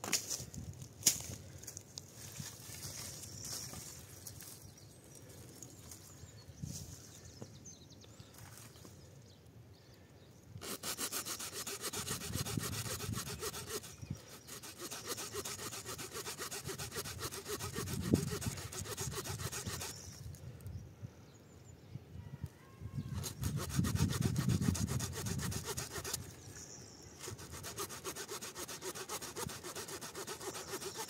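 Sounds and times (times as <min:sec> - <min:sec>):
faint handling sounds: 0:00.1 - 0:09.1
small saw cutting wood: 0:10.6 - 0:20.2, 0:23.2 - 0:26.4, 0:27.2 - 0:31.0.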